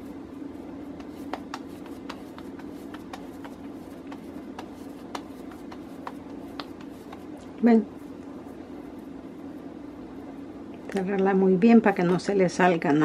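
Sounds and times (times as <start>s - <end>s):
hands patting mashed potato: 0.0s - 9.0s
steady low hum: 0.0s - 13.0s.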